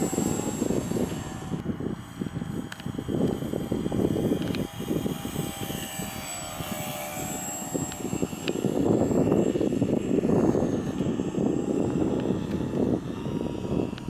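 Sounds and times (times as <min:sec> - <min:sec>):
model plane motor whining: 0:00.0 - 0:14.0.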